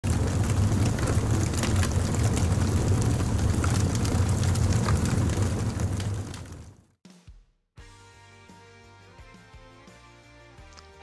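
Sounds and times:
low rumble: 0.0s - 6.8s
sharp crackles: 0.0s - 6.9s.

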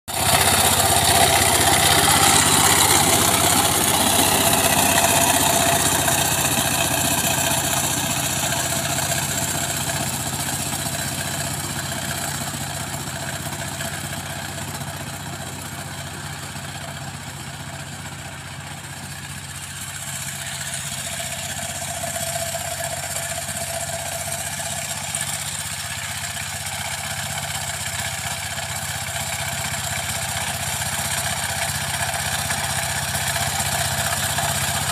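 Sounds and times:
diesel engine running: 0.1s - 34.9s
tines working soil: 0.1s - 34.9s.

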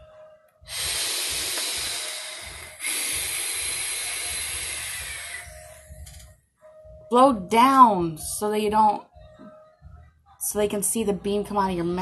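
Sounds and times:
air hissing through atomizer: 0.7s - 6.1s.

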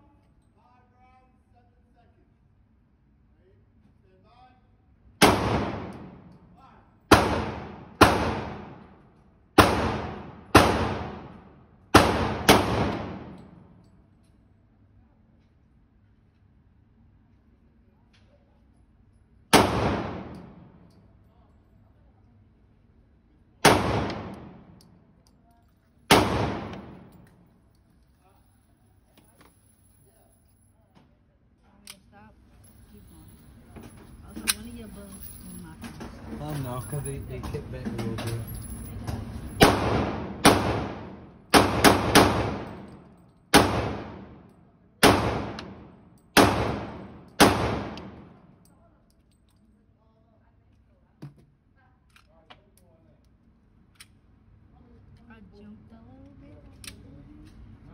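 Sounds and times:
pistol shots echoing indoors: 5.1s - 14.5s, 19.3s - 21.3s, 23.6s - 27.9s, 38.5s - 49.6s.

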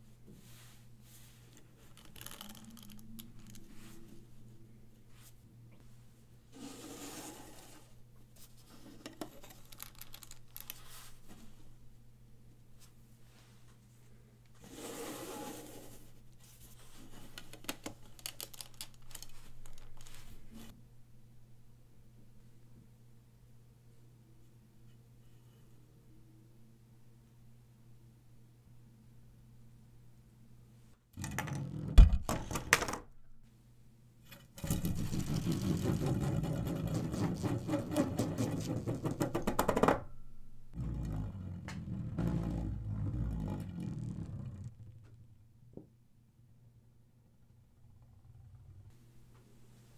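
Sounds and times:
plastic pieces clicking and rattling: 1.9s - 3.7s, 9.2s - 10.8s, 17.4s - 20.2s
rustling handling noise: 7.2s - 11.8s, 15.8s - 20.7s.

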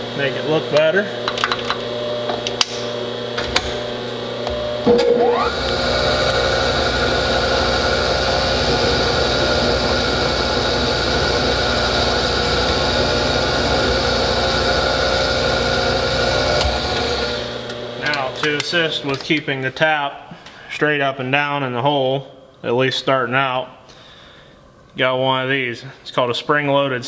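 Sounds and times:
milling machine motor whine: 0.0s - 19.3s.

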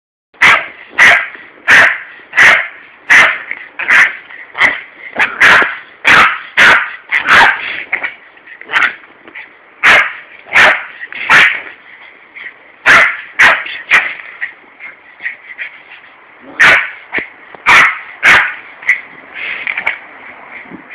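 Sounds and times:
small dog barking: 0.4s - 7.7s, 8.7s - 9.0s, 9.8s - 11.7s, 12.8s - 14.2s, 16.5s - 17.0s, 17.6s - 19.0s.

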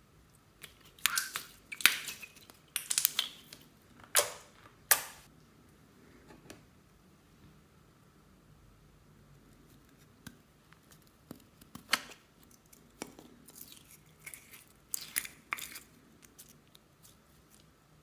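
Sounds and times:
slime squeezed with wet pops: 0.6s - 3.6s.

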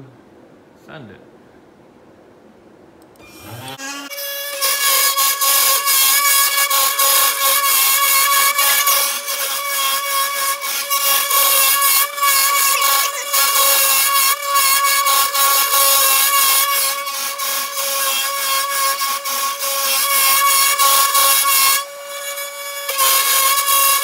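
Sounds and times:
spindle motor whining: 3.2s - 16.3s.

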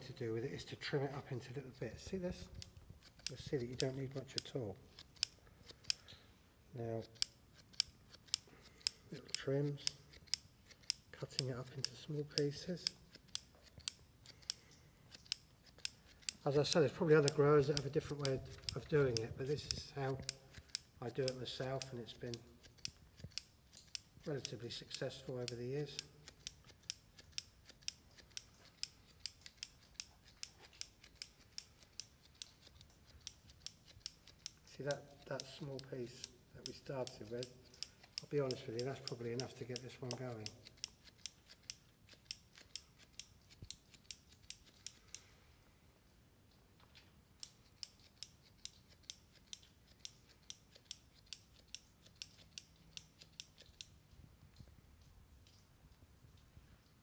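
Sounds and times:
small scissors snipping moss: 2.1s - 6.1s, 7.0s - 45.3s, 47.4s - 54.0s.

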